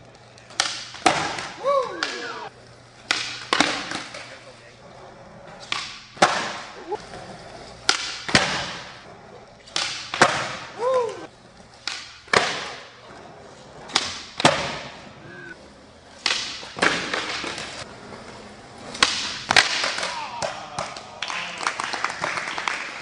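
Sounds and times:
skateboard wheels rolling on concrete: 0.0s - 23.0s
skateboard popping and slapping down: 9.6s - 10.7s, 13.8s - 15.0s, 16.2s - 17.8s.

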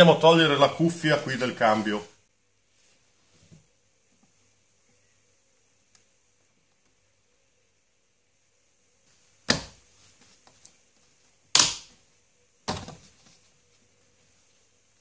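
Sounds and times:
sharp plastic snaps: 11.5s - 11.9s.

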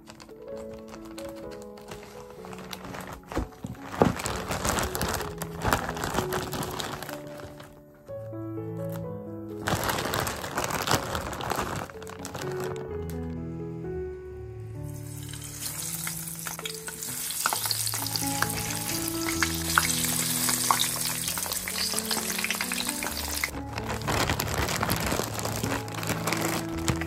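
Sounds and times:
plastic bag rustling: 0.0s - 8.0s, 8.8s - 13.3s, 15.0s - 27.0s
hash browns sizzling in oil: 15.0s - 23.5s.

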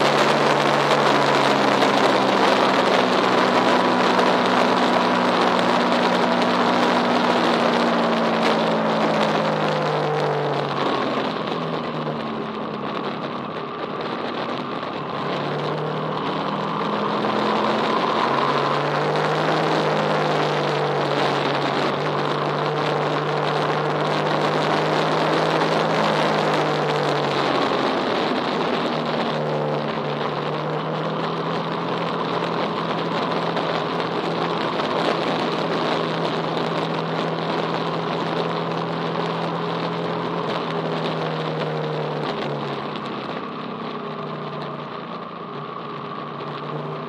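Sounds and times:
constant rushing noise: 0.0s - 47.0s
vehicle engine running: 0.0s - 47.0s.

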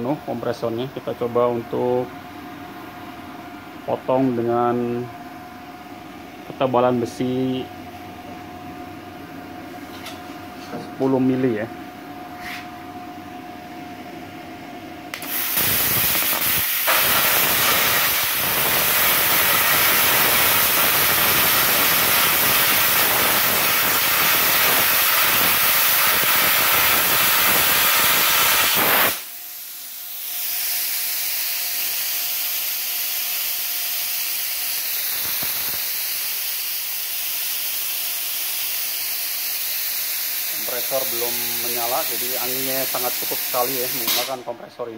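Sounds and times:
plasma cutter arc hissing: 15.1s - 44.4s
air rushing from torch: 15.2s - 32.8s, 34.0s - 44.4s.

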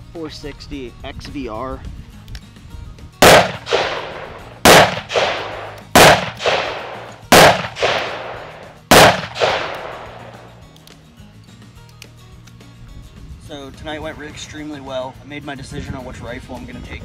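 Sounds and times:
revolver shots with echo: 3.2s - 10.5s.

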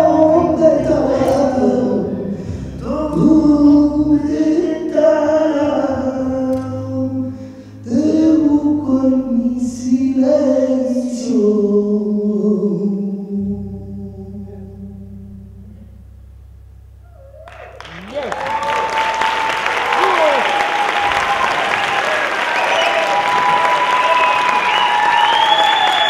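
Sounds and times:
men singing unaccompanied: 0.0s - 15.0s
singer breathing: 2.2s - 2.8s, 7.3s - 7.9s.

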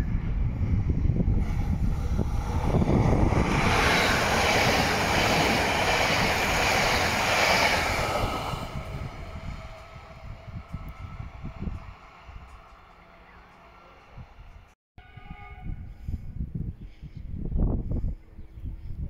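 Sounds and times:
train passing at speed: 0.0s - 14.8s.

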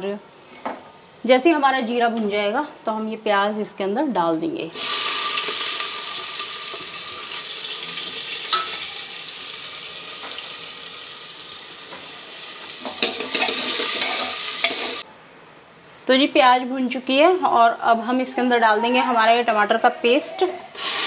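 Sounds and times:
onions sizzling in oil: 4.7s - 15.0s, 20.8s - 21.0s
spoon clinking: 8.5s - 8.9s.

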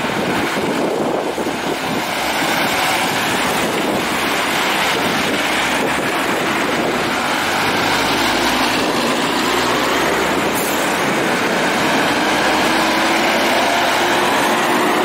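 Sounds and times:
truck engine drone: 0.0s - 15.0s
tyre hiss on wet pavement: 6.8s - 15.0s.

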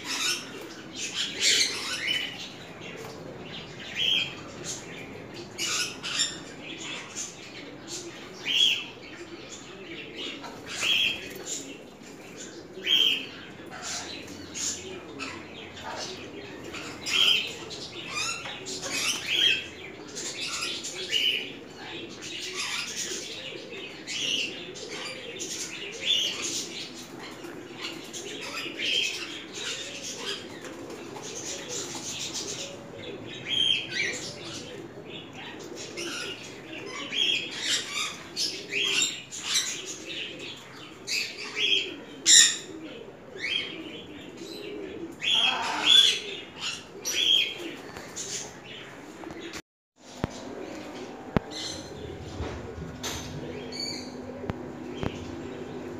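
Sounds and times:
birds chirping and squawking: 0.0s - 55.9s
low wavering coo: 0.0s - 55.9s.

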